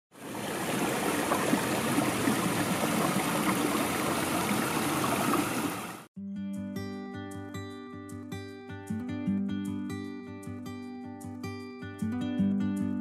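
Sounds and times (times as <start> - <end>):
stream rushing over rocks: 0.2 - 6.1
acoustic guitar music: 6.2 - 13.0.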